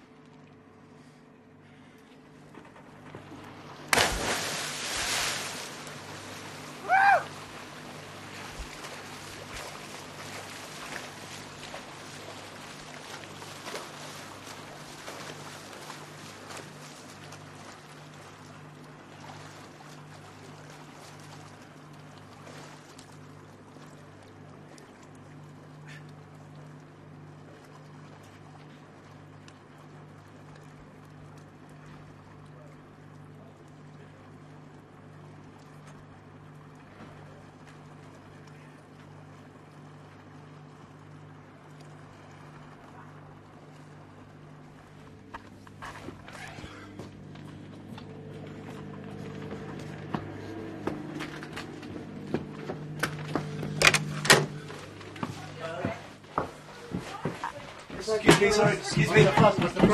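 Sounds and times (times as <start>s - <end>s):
churning water: 0.0s - 59.9s
ship machinery humming: 0.0s - 59.9s
loud splash into water: 3.9s - 7.4s
person crying out: 6.8s - 7.3s.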